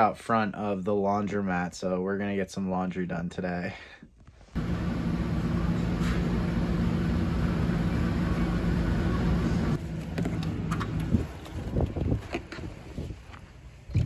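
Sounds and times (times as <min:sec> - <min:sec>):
motor hum: 0:04.6 - 0:12.6.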